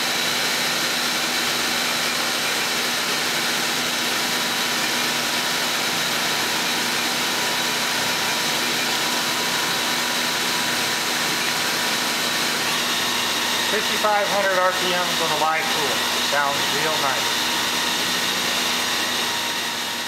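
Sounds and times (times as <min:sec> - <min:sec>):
lathe spindle whine: 0:00.0 - 0:20.0.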